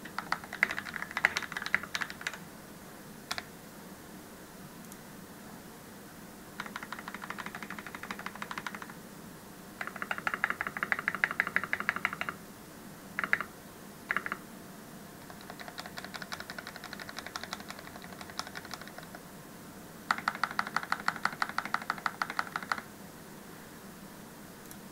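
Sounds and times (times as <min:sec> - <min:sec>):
mechanical keyboard typing: 0:00.0 - 0:02.4, 0:03.3 - 0:03.5, 0:06.6 - 0:09.0, 0:09.8 - 0:12.4, 0:13.2 - 0:13.5, 0:14.1 - 0:14.4, 0:15.2 - 0:19.2, 0:20.1 - 0:22.9.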